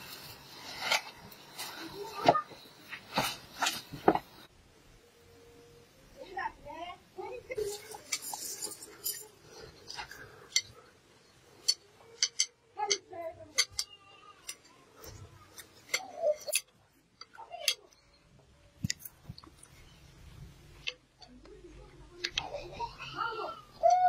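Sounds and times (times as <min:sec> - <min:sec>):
metal spoons clinking on glass bowls: 0:07.8 - 0:09.4, 0:15.9 - 0:16.7.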